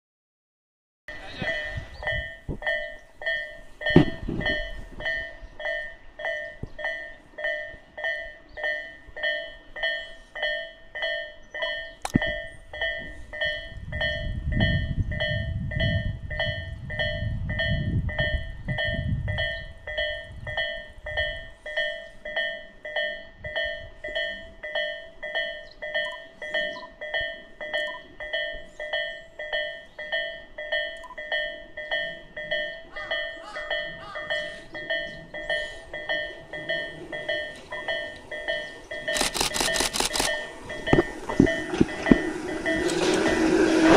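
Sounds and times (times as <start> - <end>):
level crossing warning bell: 1.1 - 43.9.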